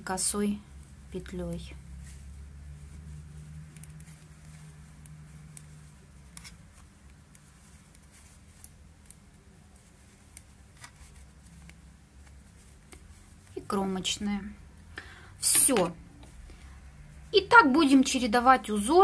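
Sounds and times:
steady low hum: 0:00.0 - 0:18.9
knitting needles clicking: 0:03.4 - 0:13.6.

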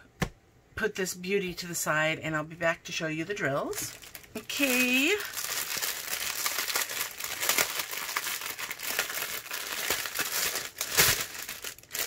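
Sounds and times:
plastic wrap crinkling: 0:03.5 - 0:12.0.

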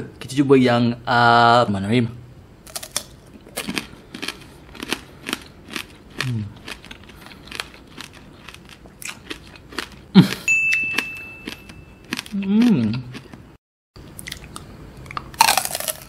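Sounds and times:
crunching candied grape: 0:02.6 - 0:10.5, 0:14.1 - 0:16.0
thin high steady tone: 0:10.5 - 0:12.1.

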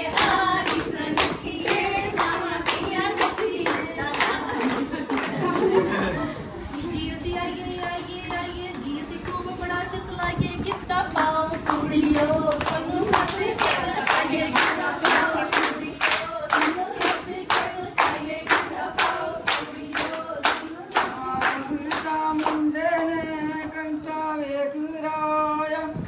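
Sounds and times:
hand claps: 0:00.0 - 0:05.7, 0:10.6 - 0:23.7
voices singing together: 0:00.0 - 0:26.0.

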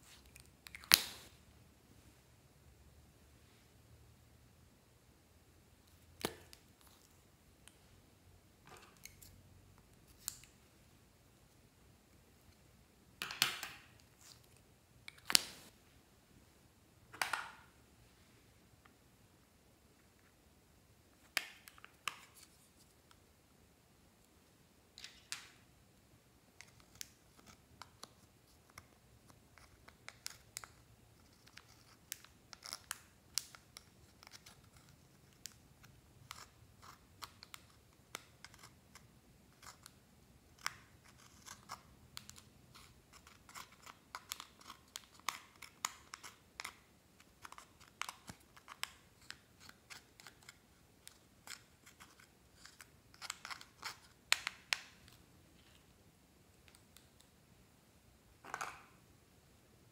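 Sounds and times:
tweezers scraping makeup powder: 0:26.6 - 0:55.8.

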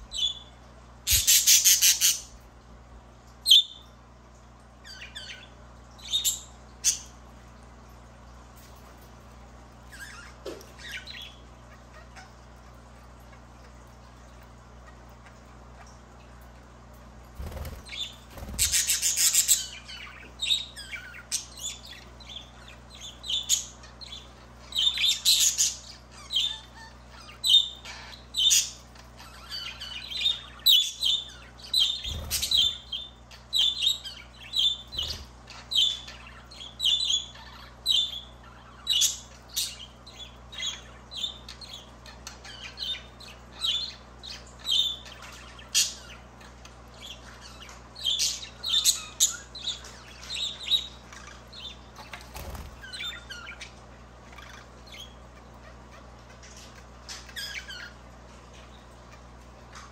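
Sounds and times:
budgerigars chirping: 0:01.1 - 0:02.3, 0:17.4 - 0:59.3.

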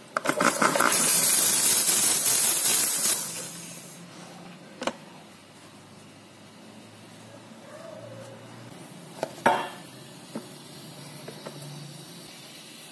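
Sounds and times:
steam wand spitting and sputtering: 0:00.2 - 0:04.0
loud hiss of steam: 0:00.5 - 0:04.0, 0:09.8 - 0:12.9.

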